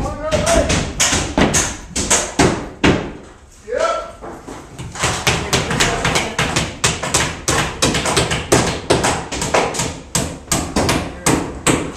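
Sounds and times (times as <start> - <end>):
hammers driving nails into wood: 0.0 - 3.3, 4.8 - 11.9.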